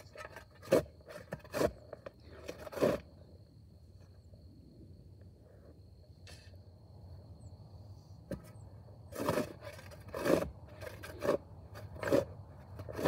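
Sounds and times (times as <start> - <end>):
shovel scraping clay soil: 0.0 - 3.3, 8.3 - 13.0.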